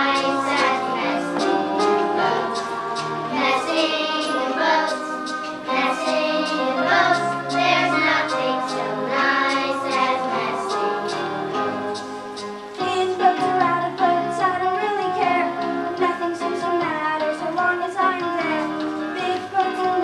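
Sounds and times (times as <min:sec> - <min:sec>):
children singing: 0:00.0 - 0:11.6
instrumental accompaniment: 0:00.0 - 0:20.0.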